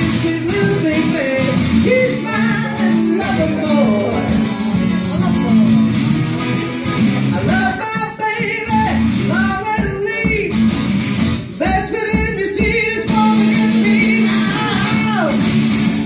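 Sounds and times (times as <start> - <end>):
harmonica bending notes: 0.0 - 8.1
acoustic guitar strumming: 0.0 - 16.0.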